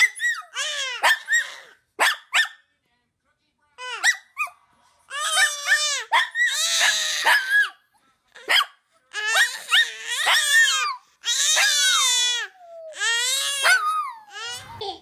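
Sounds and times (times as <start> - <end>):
baby squealing and laughing: 0.0 - 1.8, 5.1 - 7.8, 9.2 - 15.0.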